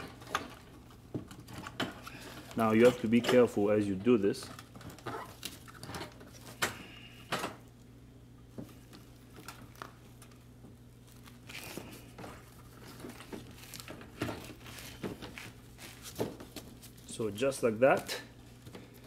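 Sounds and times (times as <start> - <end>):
crinkling: 0.0 - 6.6, 8.6 - 17.2
faint steady hum: 0.0 - 19.0.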